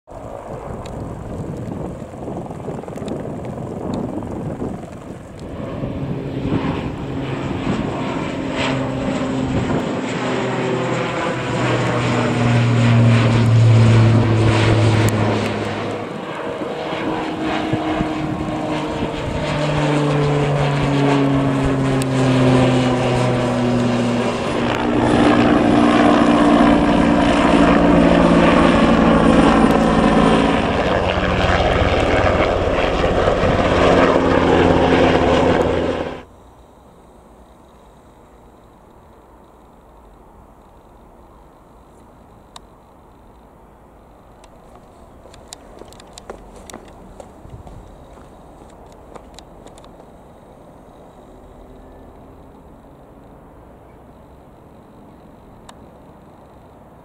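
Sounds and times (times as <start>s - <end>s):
aircraft propeller drone: 0.1s - 57.0s.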